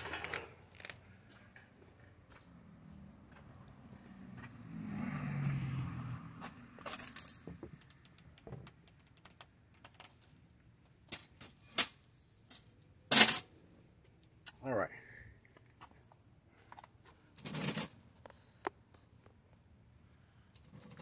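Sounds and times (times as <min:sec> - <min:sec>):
sharp clicks and light rattles: 0:07.4 - 0:10.3.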